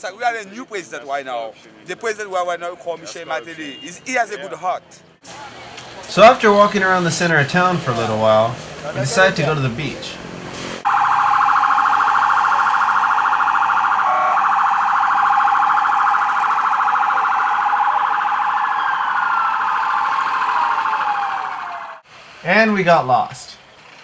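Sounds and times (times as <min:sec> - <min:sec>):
pulsing electronic siren: 0:10.8 - 0:22.0.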